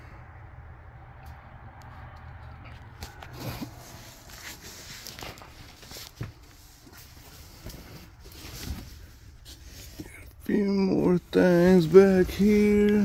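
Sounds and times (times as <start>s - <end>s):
footsteps: 1.8s - 10.0s.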